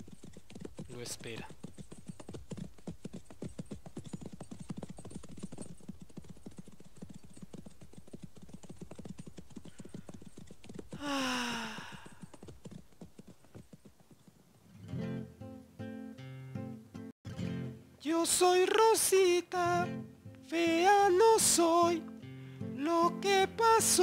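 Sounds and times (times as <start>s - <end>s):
horse hooves clip-clopping: 0.0s - 14.8s.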